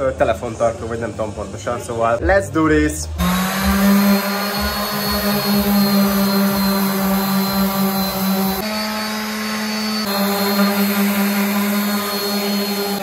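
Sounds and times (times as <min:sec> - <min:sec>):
power tool motor whine: 0:03.2 - 0:13.0.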